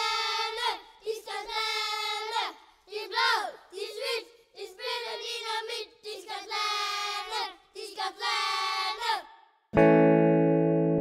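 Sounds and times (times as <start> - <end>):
guitar chord ringing: 9.8 - 11.0.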